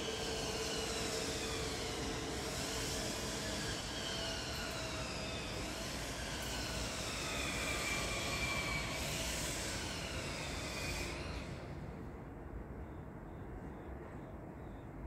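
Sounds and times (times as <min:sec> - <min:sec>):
jet aircraft passing overhead: 0:00.0 - 0:11.9.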